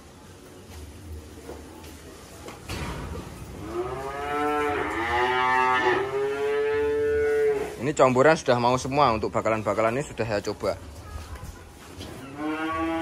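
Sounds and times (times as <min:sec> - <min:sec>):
cow mooing: 0:03.6 - 0:07.8, 0:12.3 - 0:13.0.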